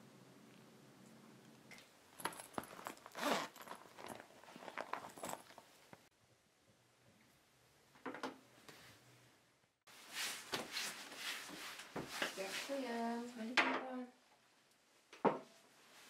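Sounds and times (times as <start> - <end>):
hands rummaging in bag: 2.2 - 6.0
zipper being pulled open: 2.4 - 5.6.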